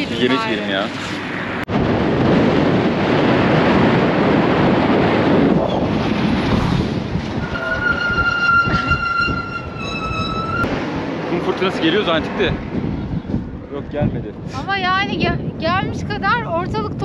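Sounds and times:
wind buffeting microphone: 0.0 - 17.0
high whistle-like tone: 7.4 - 10.7.

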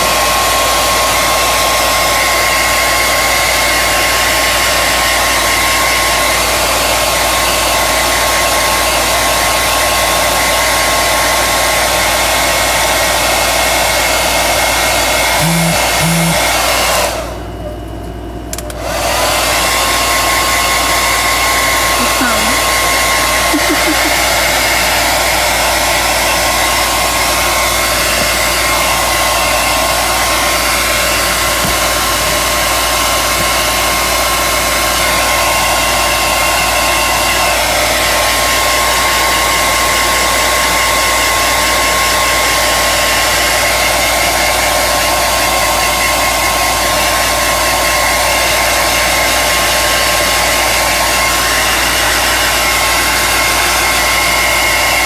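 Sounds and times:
hair dryer blowing: 0.0 - 55.0.

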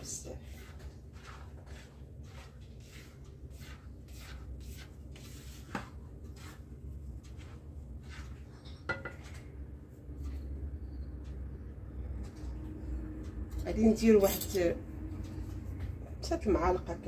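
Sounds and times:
spatula scraping flour in bowl: 0.0 - 8.9
spatula knocking bowl: 8.8 - 9.4.

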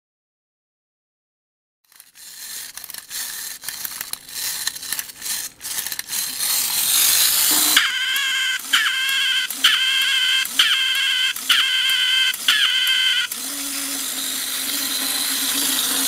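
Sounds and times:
clockwork rasping clicks: 1.9 - 16.0
toy squeaker quack: 7.5 - 13.4.

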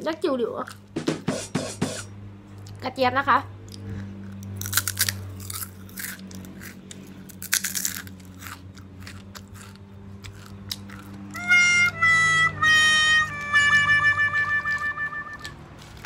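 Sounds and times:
low hum: 3.4 - 15.8
crunching chip: 4.3 - 12.1, 13.4 - 16.0.

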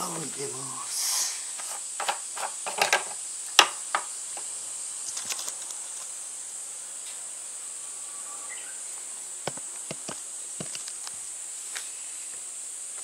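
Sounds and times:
high-pitched insect chorus: 0.0 - 13.0
plastic clicks and knocks: 2.0 - 4.1.

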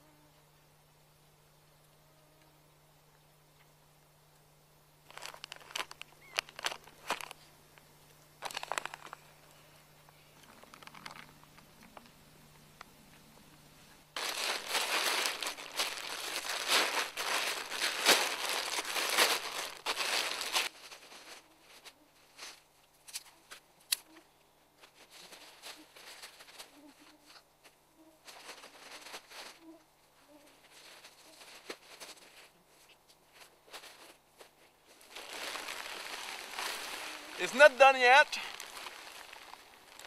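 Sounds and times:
plastic tarp crinkling: 5.1 - 7.5, 8.4 - 9.2, 10.5 - 12.0, 14.2 - 22.6, 28.3 - 29.6, 34.9 - 40.0.

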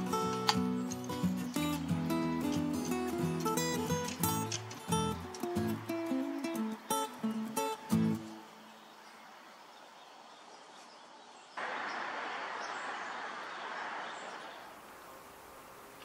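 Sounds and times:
steady rushing noise: 11.6 - 16.0.

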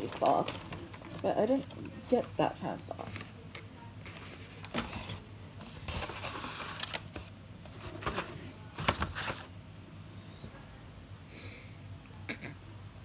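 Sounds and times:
plastic bag rustling: 0.0 - 3.3, 4.0 - 9.5.

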